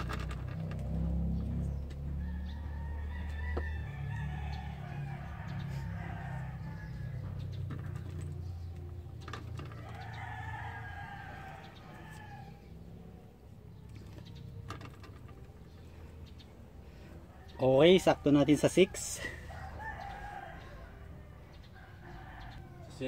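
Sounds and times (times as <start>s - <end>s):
rooster crowing: 2.1s - 7.5s, 9.7s - 12.9s, 17.2s - 23.0s.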